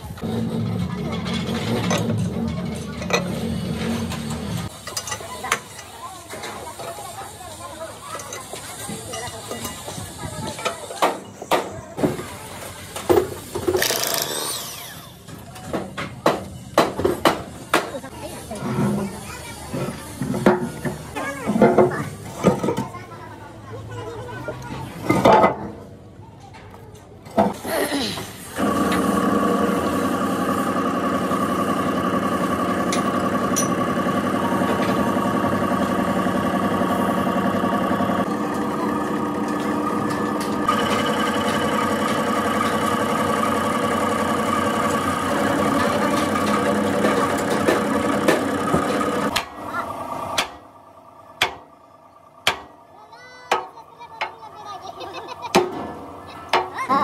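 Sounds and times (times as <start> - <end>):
machine humming: 28.6 - 52.5.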